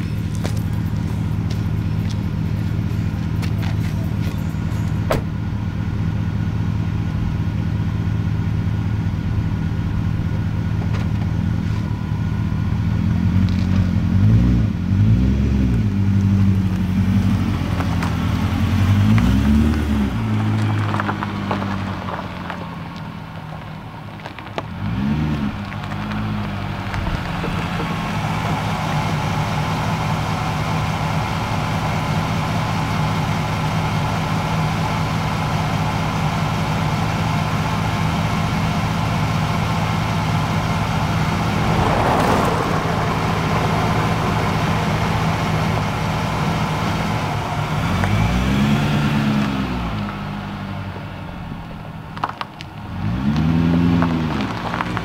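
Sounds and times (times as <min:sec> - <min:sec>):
car engine idling: 0:00.0 - 0:15.0, 0:15.7 - 0:24.8, 0:25.5 - 0:53.1
engine throttle blips: 0:25.5 - 0:53.1
brief rushing noise: 0:40.9 - 0:46.8.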